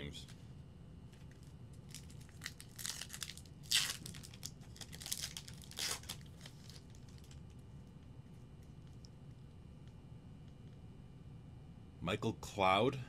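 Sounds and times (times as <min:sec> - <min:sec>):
wrapper tearing and crinkling: 0:01.3 - 0:07.4.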